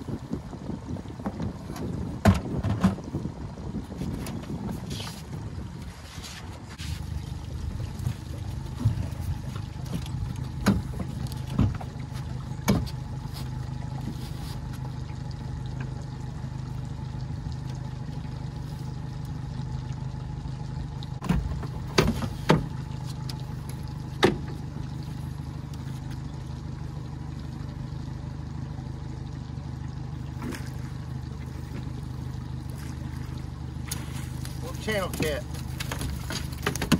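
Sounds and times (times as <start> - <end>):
boat motor idling: 0.0 - 36.9
gear knocking against boat: 0.3 - 5.4, 7.6 - 14.9, 21.2 - 26.3, 30.3 - 36.9.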